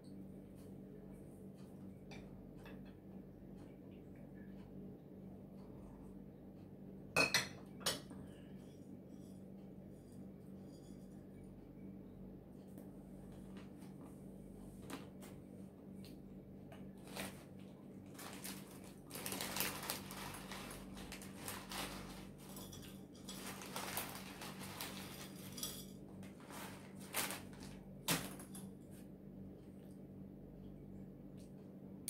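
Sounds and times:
plastic bag crinkling: 0:17.0 - 0:28.6.

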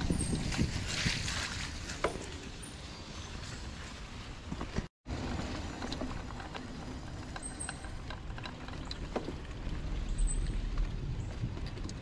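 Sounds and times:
bike rolling on dirt trail: 0:00.0 - 0:12.0
bike clicks and rattles: 0:04.4 - 0:12.0.

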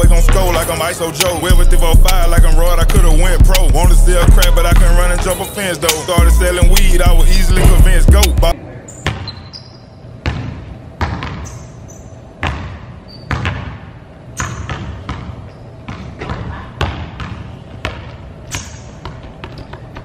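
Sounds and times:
basketballs bouncing on gym floor: 0:00.0 - 0:00.7, 0:01.5 - 0:05.2, 0:09.0 - 0:09.5, 0:10.2 - 0:11.8, 0:12.4 - 0:20.0.

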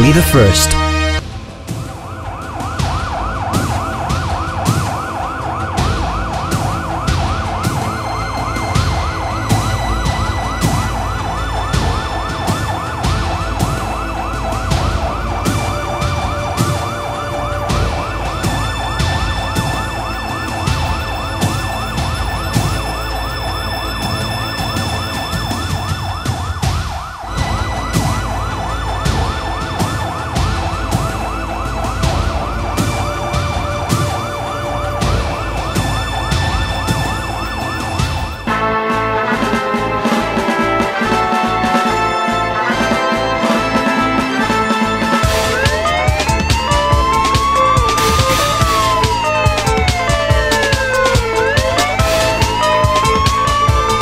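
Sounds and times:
police siren yelp: 0:00.0 - 0:38.8, 0:39.6 - 0:54.0
steady beat with deep bass: 0:45.2 - 0:54.0.

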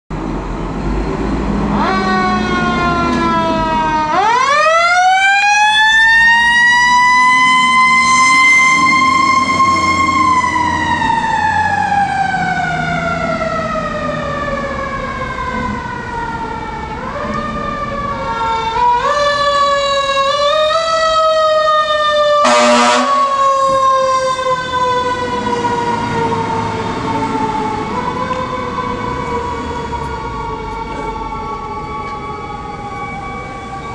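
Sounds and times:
fire truck siren wailing: 0:00.3 - 0:33.9.

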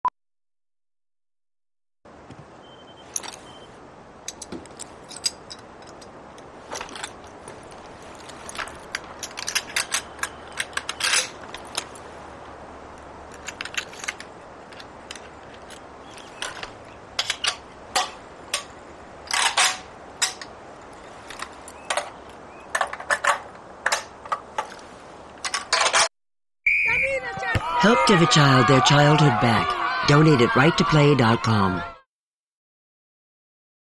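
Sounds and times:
rifle parts clicking and clacking: 0:04.2 - 0:12.1, 0:12.9 - 0:26.1.

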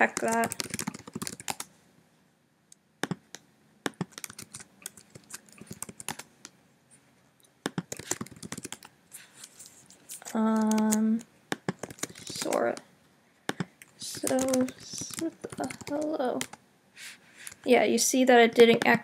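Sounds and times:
keyboard typing: 0:00.0 - 0:01.7, 0:03.0 - 0:06.3, 0:07.7 - 0:12.8, 0:13.5 - 0:16.6.

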